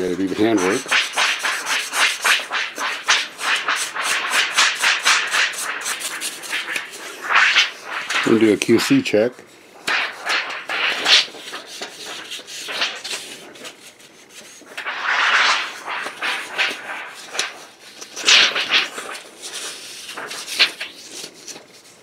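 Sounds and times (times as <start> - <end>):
steel wool scratching metal edges: 0.3 - 8.3, 9.9 - 13.8.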